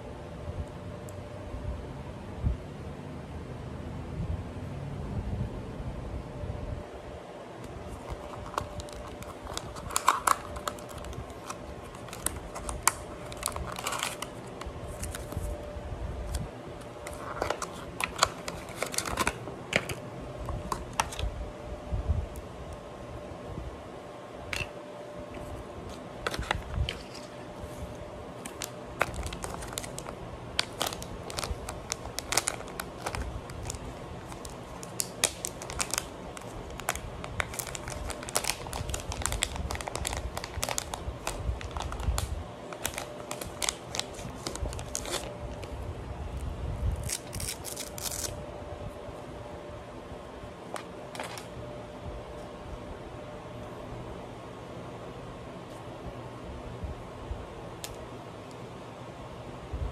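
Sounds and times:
faint steady hum: 0.0 - 59.9
handling cardboard and plastic packaging: 7.7 - 21.4, 25.3 - 48.4, 50.7 - 51.6.

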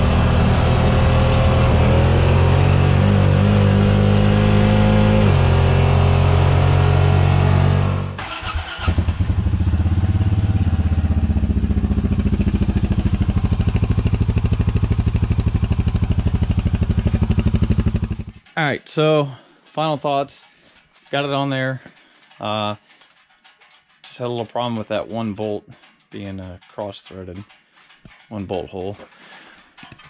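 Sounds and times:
single-cylinder engine running: 0.0 - 18.5.

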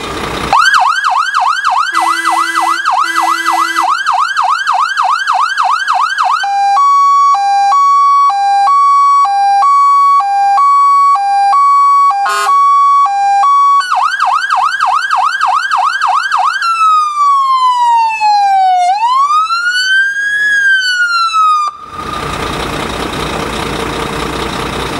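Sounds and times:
diesel engine idling: 0.0 - 1.2, 1.9 - 4.0, 21.7 - 24.9
fire engine siren: 0.0 - 24.8.

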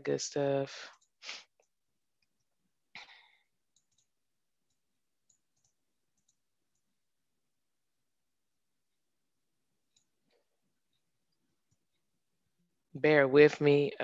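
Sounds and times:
faint mouse clicks: 3.7 - 4.1.

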